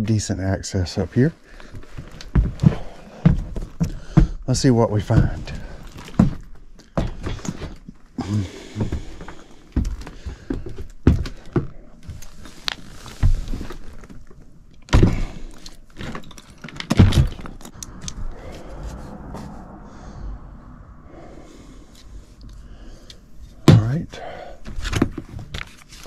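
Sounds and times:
thumps and shuffling in attic: 1.4s - 18.7s, 23.5s - 26.0s.

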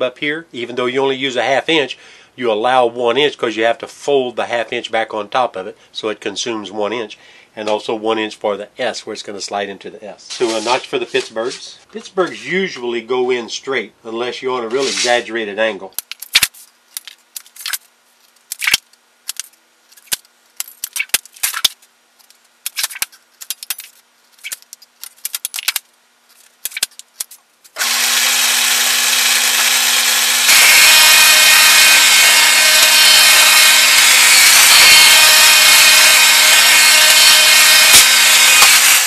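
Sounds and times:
machine motor humming: 27.8s - 39.0s.

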